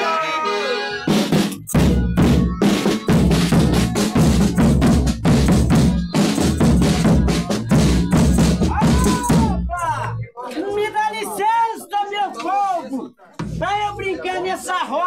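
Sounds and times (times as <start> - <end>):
bass drum struck with mallet: 13.4 - 13.7.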